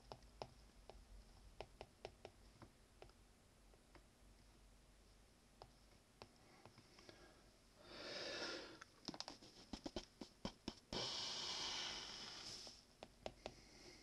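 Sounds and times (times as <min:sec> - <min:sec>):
breathy exhales: 0:11.0 - 0:12.8.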